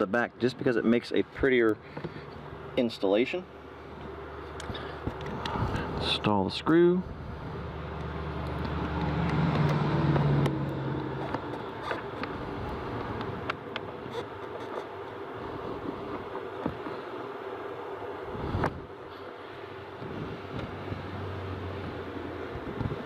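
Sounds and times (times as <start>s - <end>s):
low hum: 7.0s - 14.5s.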